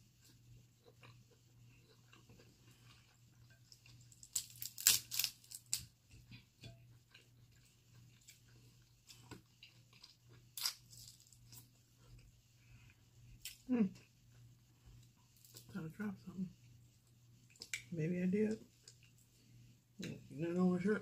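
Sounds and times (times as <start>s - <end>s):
low steady hum: 0.0s - 21.0s
chewing: 0.2s - 13.6s
crab shells cracking: 3.7s - 5.9s, 10.6s - 11.6s.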